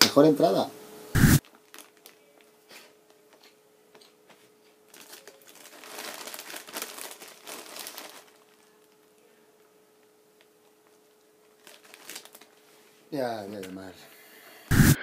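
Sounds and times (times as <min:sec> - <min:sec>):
crisp packet crinkling: 0:01.4 - 0:02.4, 0:04.9 - 0:09.1, 0:11.4 - 0:12.6.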